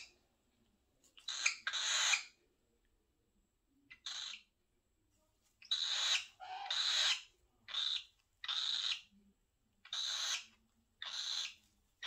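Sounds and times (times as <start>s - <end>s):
cockatiel hissing: 1.2s - 2.3s, 5.6s - 9.0s, 9.9s - 11.6s.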